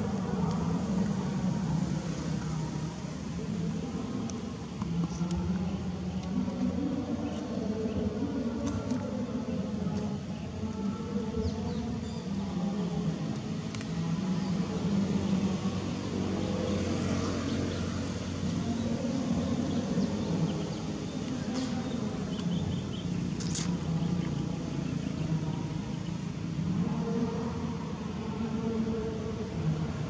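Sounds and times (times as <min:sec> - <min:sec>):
faint sharp clicks: 0:13.3 - 0:14.0.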